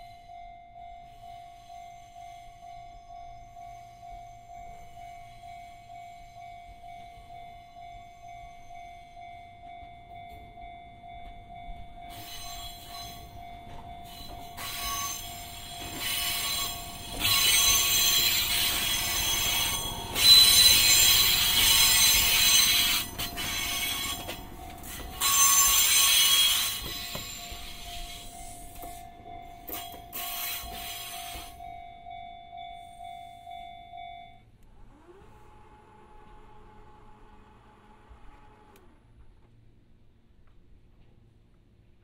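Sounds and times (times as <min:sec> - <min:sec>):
train wheels squealing: 0:11.1 - 0:34.4.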